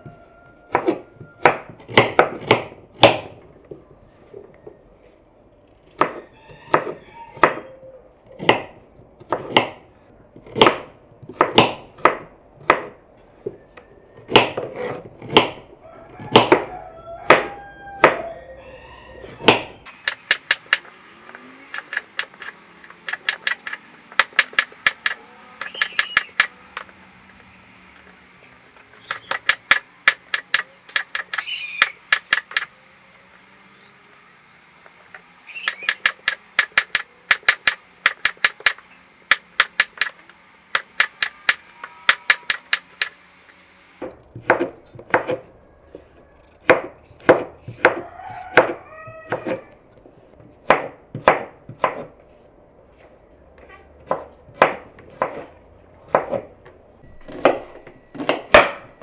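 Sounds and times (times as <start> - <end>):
knife chopping on cutting board: 46.6 - 49.6, 50.6 - 52.1, 56.1 - 56.5.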